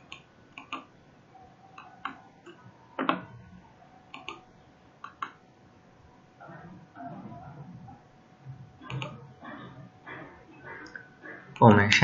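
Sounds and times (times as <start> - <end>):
computer mouse clicking: 0.0 - 0.9, 1.8 - 3.3, 4.1 - 4.4, 5.0 - 5.4, 8.8 - 9.2.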